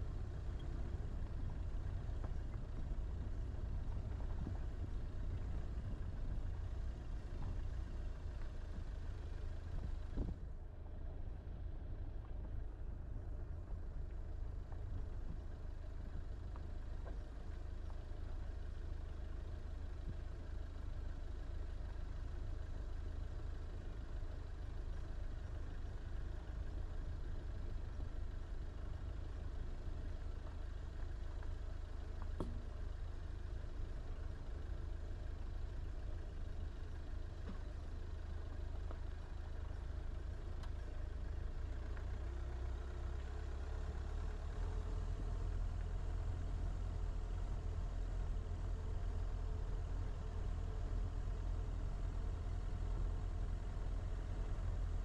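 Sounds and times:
car driving on rough road: 0.0 - 55.0
faint tick: 40.6 - 40.8.

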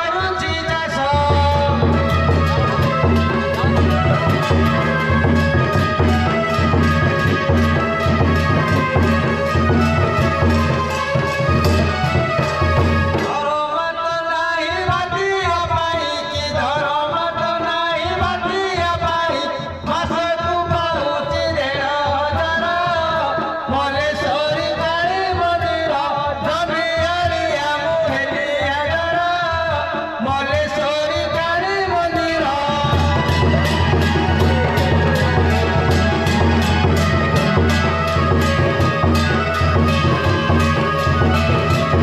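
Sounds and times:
drumming: 0.1 - 13.9, 14.6 - 42.0
ornamented folk melody: 1.3 - 13.6, 32.7 - 42.0.

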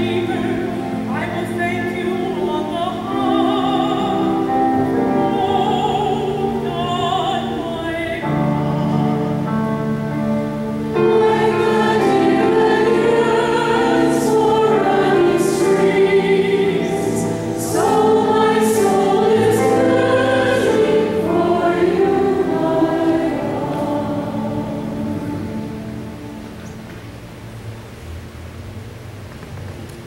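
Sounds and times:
group of voices singing chant: 11.0 - 25.4.

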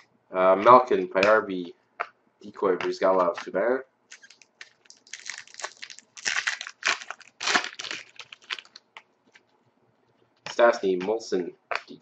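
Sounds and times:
foil pack tearing open: 4.1 - 8.8
foil wrapper crinkling: 4.1 - 9.4.

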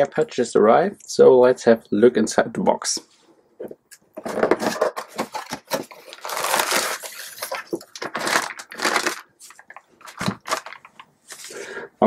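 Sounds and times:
cardboard and plastic crinkling: 4.2 - 11.6.

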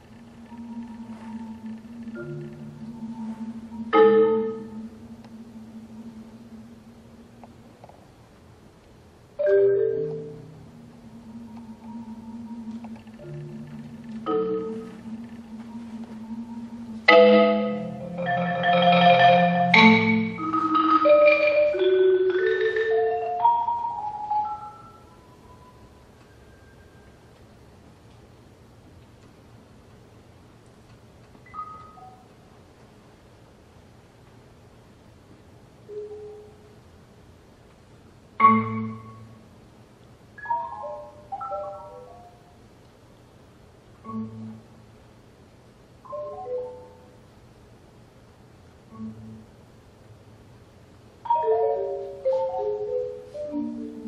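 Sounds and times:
marimba chords played with mallets: 0.2 - 7.4, 9.4 - 27.3, 31.5 - 32.3, 38.4 - 39.6, 40.4 - 42.6, 44.0 - 44.9, 46.0 - 47.2, 48.9 - 49.6, 51.2 - 54.0.

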